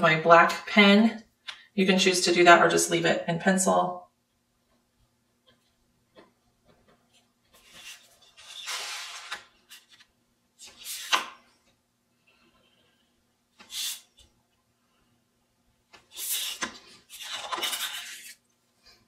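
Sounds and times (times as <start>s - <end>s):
faint steady hum: 0.0s - 19.0s
pen scratching on paper: 16.1s - 18.4s.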